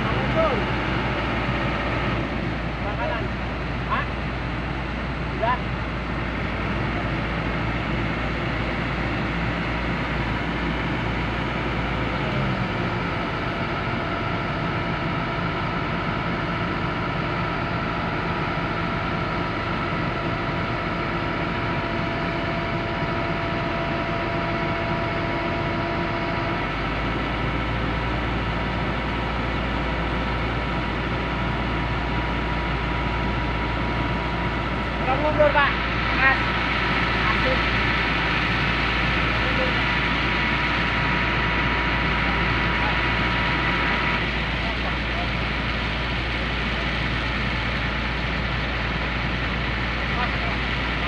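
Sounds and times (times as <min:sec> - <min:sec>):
diesel engines running: 0:00.0 - 0:51.0.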